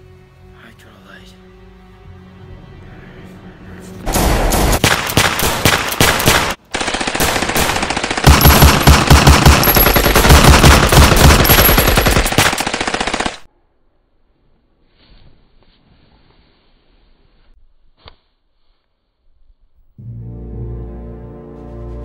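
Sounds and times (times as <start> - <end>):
machine-gun fire: 4.1 - 13.5.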